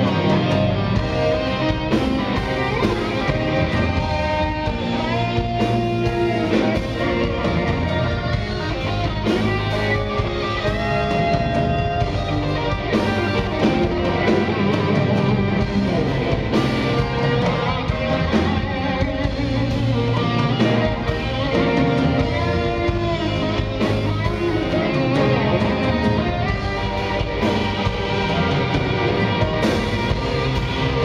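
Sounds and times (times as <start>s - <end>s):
electric guitar solo: 0.0s - 31.0s
live rock band: 0.0s - 31.0s.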